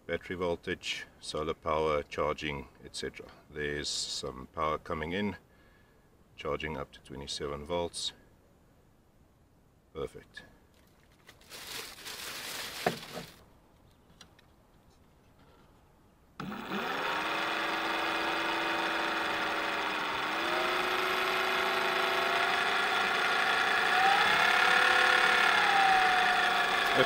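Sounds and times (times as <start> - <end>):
plastic bag rustling: 10.8 - 13.4
electric motor whine: 16.4 - 27.0.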